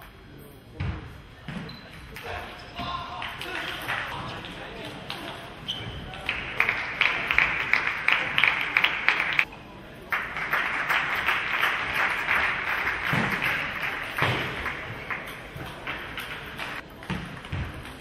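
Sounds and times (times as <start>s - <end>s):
audience applauding: 6.3s - 9.4s, 10.1s - 15.2s.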